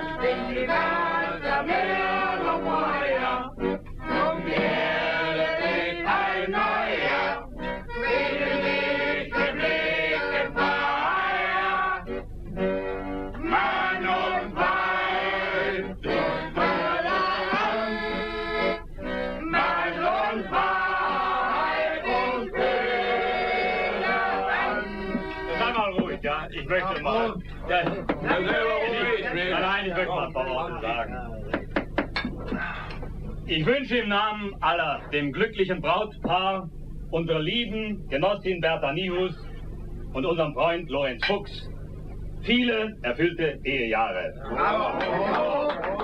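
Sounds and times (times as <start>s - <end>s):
group singing in chorus: 0.0s - 7.5s, 8.1s - 12.2s, 13.4s - 18.8s, 19.4s - 25.6s, 26.9s - 29.5s.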